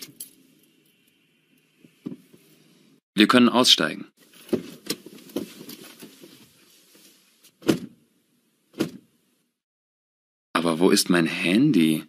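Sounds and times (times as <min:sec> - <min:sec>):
rustling and shuffling: 0:04.2 - 0:08.0.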